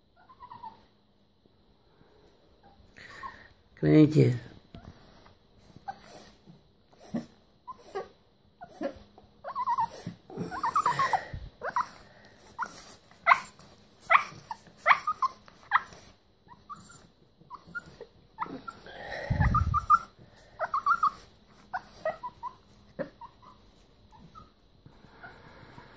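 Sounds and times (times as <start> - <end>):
small dog whimpering and yipping: 0.1 - 0.9, 4.8 - 24.6.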